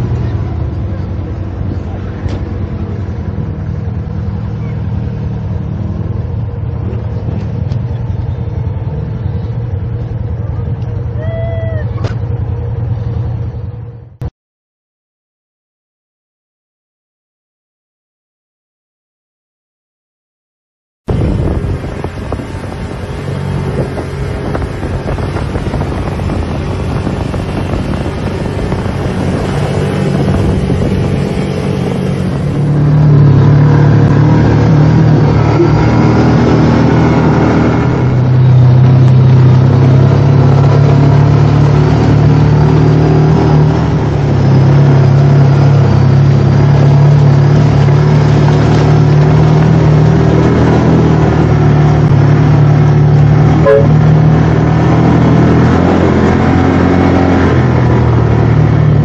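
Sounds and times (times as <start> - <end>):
atv engine running: 21.1 - 59.0.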